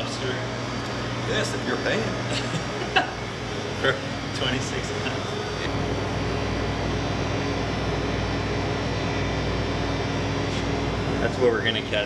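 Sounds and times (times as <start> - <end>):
cooling equipment humming: 0.0 - 12.0.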